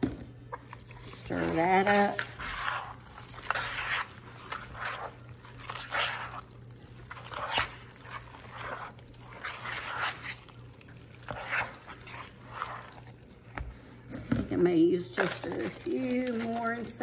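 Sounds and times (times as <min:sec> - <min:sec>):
spoon stirring squelchy mixture: 0:00.5 - 0:17.0.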